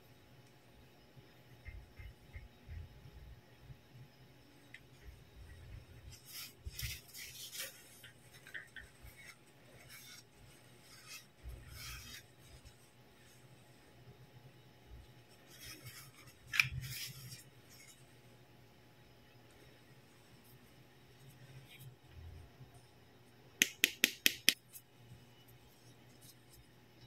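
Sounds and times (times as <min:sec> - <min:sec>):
paper rustling: 0:06.1 - 0:12.9.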